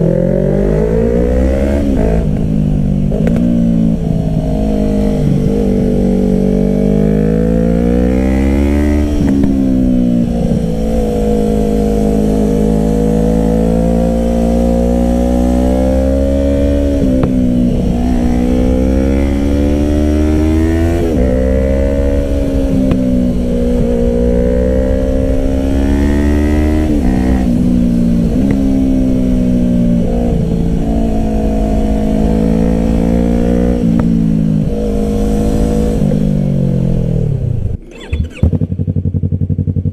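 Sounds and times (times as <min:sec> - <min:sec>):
motorcycle engine revving: 0:00.0 - 0:39.9
gear changes: 0:37.6 - 0:39.8.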